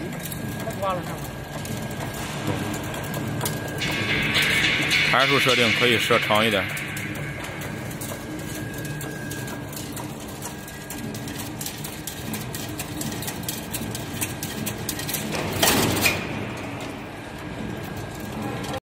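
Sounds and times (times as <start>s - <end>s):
weaving machine humming: 0.0s - 18.8s
wire mechanism clicks: 0.0s - 18.8s.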